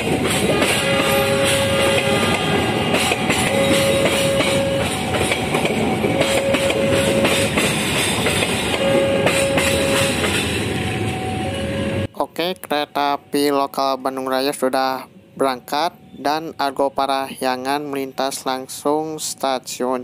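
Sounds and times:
train wheels clattering over rails: 0.0 - 10.8
level-crossing warning alarm: 0.0 - 12.1.

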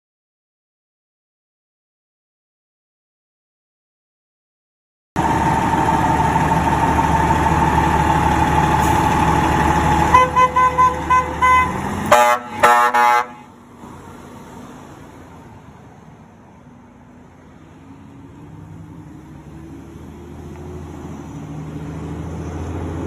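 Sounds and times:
fire truck engine running: 5.2 - 23.0
air horn blasts: 10.1 - 13.5
short horn toots: 10.1 - 13.5.

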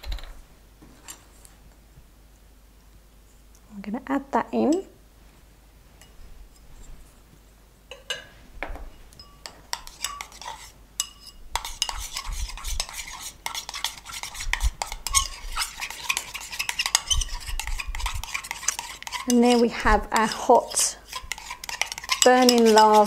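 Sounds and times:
metal knife scraping a bowl: 9.2 - 23.0.

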